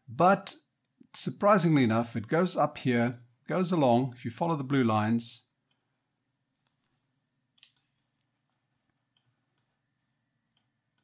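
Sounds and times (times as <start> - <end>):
computer mouse clicks: 7.6 - 8.3, 9.1 - 9.8.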